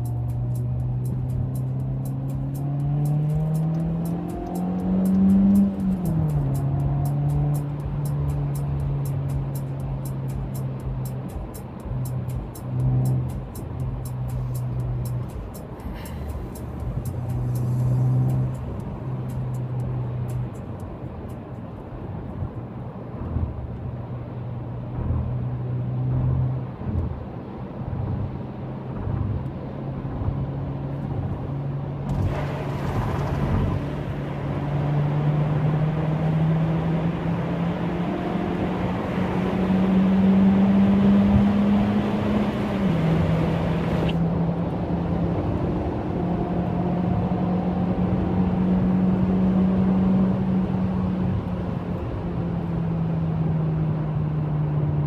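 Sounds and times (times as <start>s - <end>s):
car engine and exhaust: 0.0s - 55.0s
road and tyre noise: 0.0s - 55.0s.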